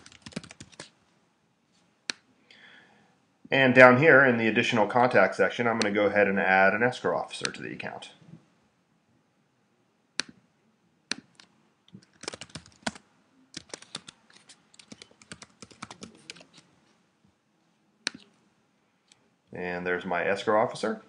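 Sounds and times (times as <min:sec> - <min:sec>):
typing on computer keyboard: 0:00.0 - 0:00.9, 0:11.1 - 0:13.0, 0:13.6 - 0:16.6.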